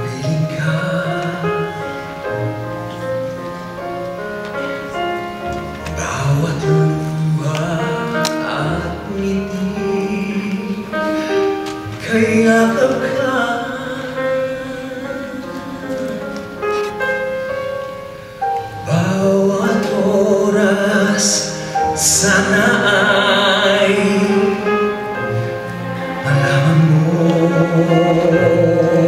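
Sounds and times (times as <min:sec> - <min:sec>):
man singing a ballad: 0:00.0 - 0:02.7, 0:05.8 - 0:16.6, 0:18.8 - 0:29.0
orchestra playing: 0:00.0 - 0:29.0.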